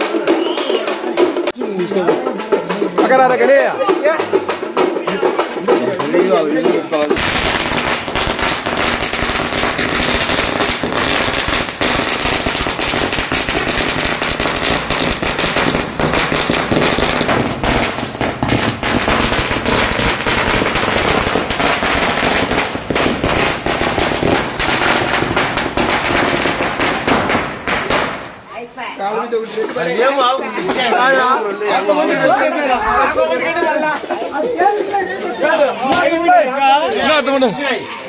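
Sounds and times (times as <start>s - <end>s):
firecrackers crackling: 0.0s - 28.7s.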